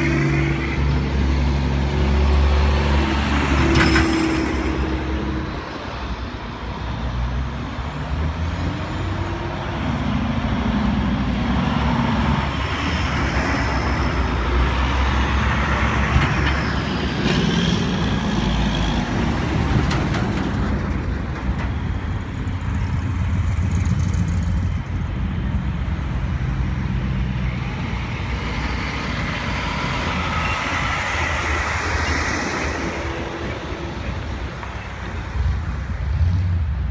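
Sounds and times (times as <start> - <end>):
diesel engine rumble: 0.0 - 36.9
trucks and cars driving past: 0.0 - 36.9
tyre and road noise: 0.0 - 36.9.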